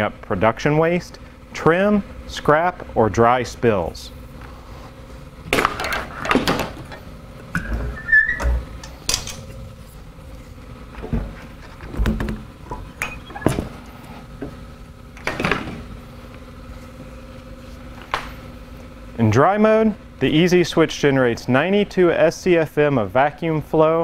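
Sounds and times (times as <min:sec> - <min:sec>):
vacuum parts clunking and scraping: 0:05.4 - 0:14.6
short squeak: 0:07.6 - 0:08.6.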